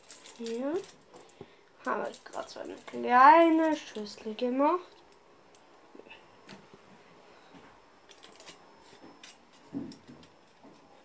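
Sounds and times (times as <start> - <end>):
aluminium foil crinkling: 0.0 - 5.2, 8.1 - 11.0.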